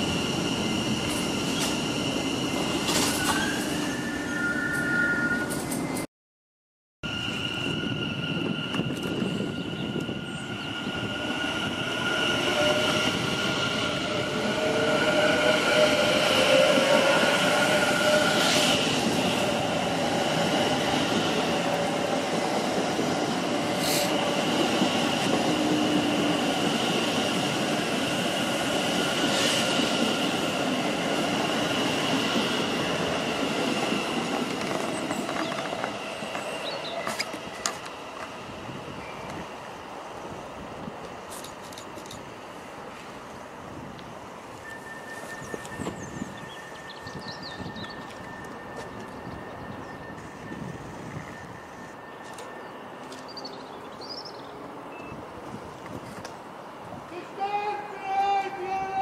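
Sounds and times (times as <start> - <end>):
electric train traction whine: 44.4 - 54.0
steady high-pitched tones: 44.5 - 53.4.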